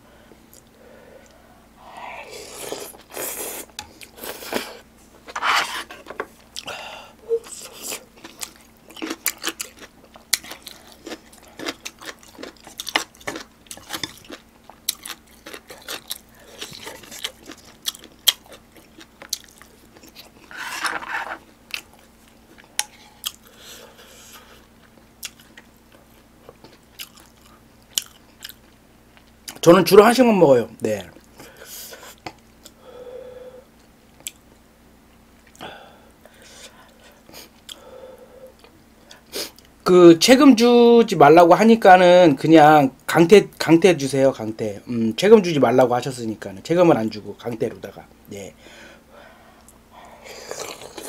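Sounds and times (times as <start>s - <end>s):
wet chewing with crunches: 7.4s - 20.8s, 21.7s - 29.6s.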